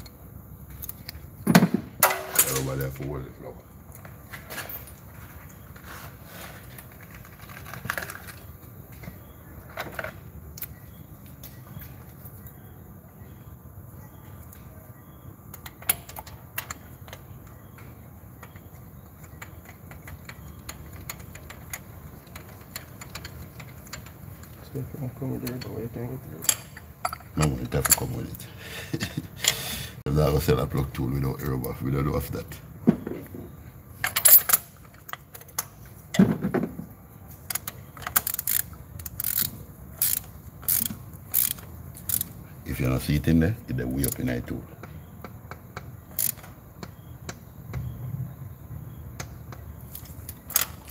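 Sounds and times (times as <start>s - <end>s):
ratchet clicking: 18.4s - 24.6s, 37.5s - 42.4s, 46.1s - 46.6s.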